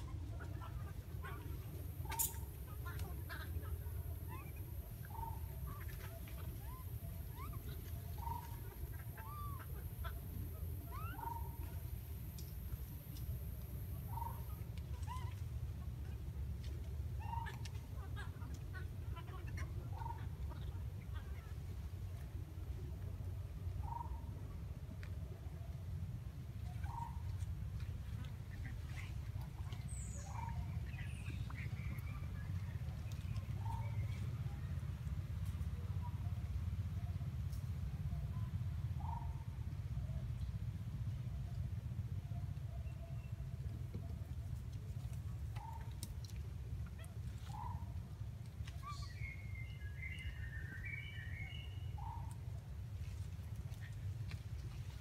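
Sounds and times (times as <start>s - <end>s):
steady low rumble: 0.0s - 55.0s
animal chirps and squeaks: 2.0s - 3.4s.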